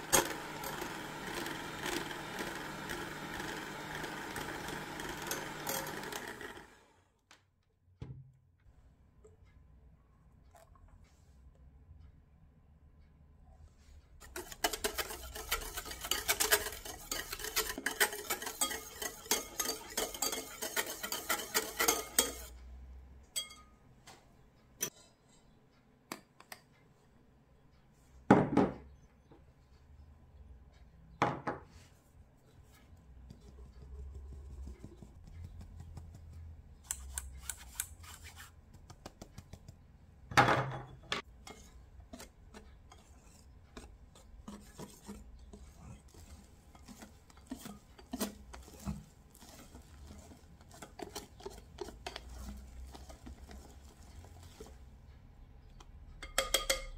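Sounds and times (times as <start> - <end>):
whisk beating batter in glass bowl: 0.0 - 6.8, 14.2 - 22.6, 32.8 - 39.8, 41.2 - 56.9.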